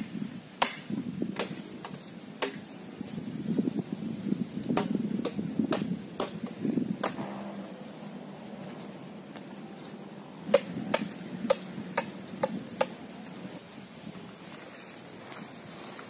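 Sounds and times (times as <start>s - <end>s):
blade chopping bamboo: 0.6s - 2.6s, 4.6s - 7.5s, 10.5s - 13.0s.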